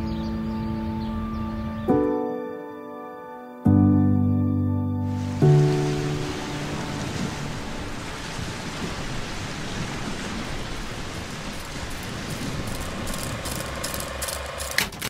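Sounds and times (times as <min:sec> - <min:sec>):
steady hiss: 0:05.1 - 0:14.8
faint crackles: 0:05.2 - 0:15.0.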